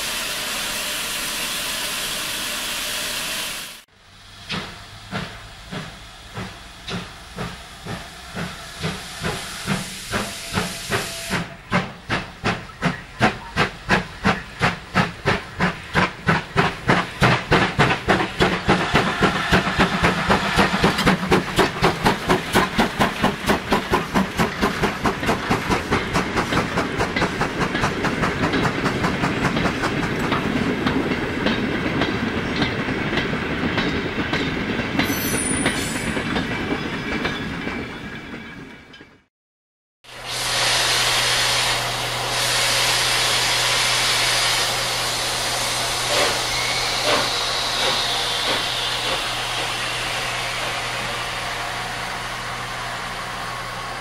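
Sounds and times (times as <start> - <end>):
steam hissing: 0.0 - 30.1, 40.1 - 54.0
steam locomotive exhaust chuffs: 0.0 - 34.1, 40.1 - 54.0.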